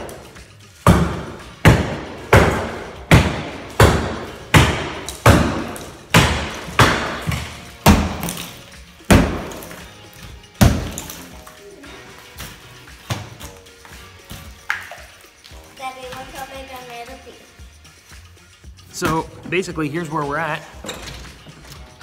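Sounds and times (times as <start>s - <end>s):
hammers smashing drywall: 0.8s - 11.3s.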